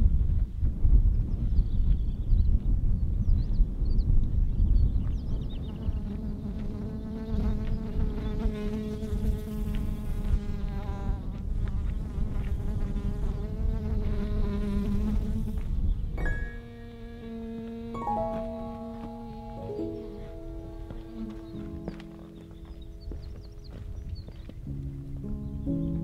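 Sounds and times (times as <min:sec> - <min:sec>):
low wind rumble: 0:00.0 - 0:06.7, 0:18.8 - 0:26.0
insect buzzing: 0:05.8 - 0:23.2
music: 0:18.0 - 0:23.8, 0:24.6 - 0:26.0.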